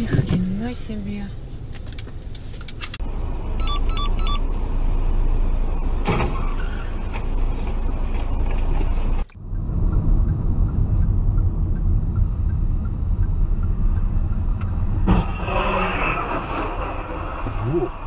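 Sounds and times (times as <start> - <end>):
car road and engine noise: 0.0 - 18.0
short electronic beeps: 3.6 - 4.4.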